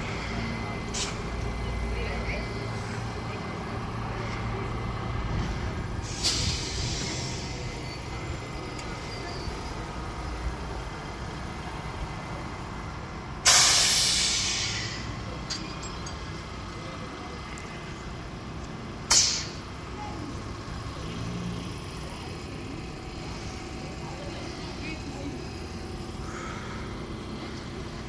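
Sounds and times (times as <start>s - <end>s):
compressed air hissing: 6.0s - 7.8s, 13.4s - 15.0s, 19.1s - 19.6s.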